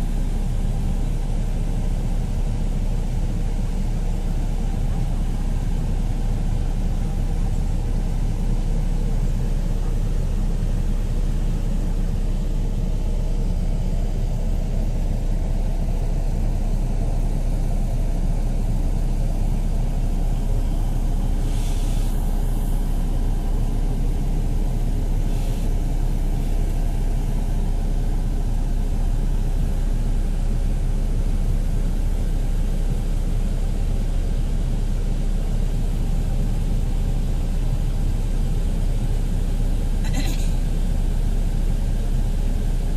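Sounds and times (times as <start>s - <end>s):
bus engine rumble: 0.0s - 42.9s
short hisses: 21.5s - 22.2s.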